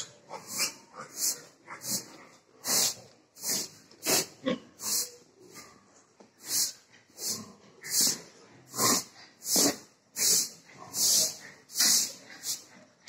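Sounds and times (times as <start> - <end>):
pig breathing heavily: 0.0 - 13.0.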